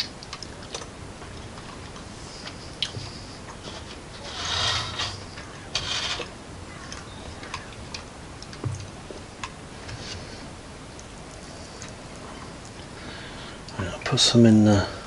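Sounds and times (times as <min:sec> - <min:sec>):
food and knife rustling and scraping: 0:00.7 - 0:07.7, 0:08.8 - 0:12.6
small clicks and taps: 0:06.9 - 0:10.0.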